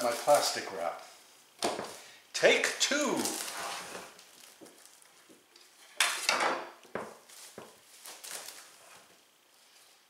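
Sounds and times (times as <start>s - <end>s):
plastic film crackling: 0.0s - 1.0s, 2.9s - 5.5s, 7.2s - 9.1s.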